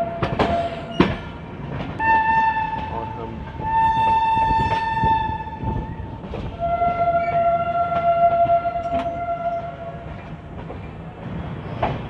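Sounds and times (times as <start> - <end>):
train horn: 0.0 - 1.0, 2.0 - 10.2
train rumbling and clicking: 0.0 - 12.0.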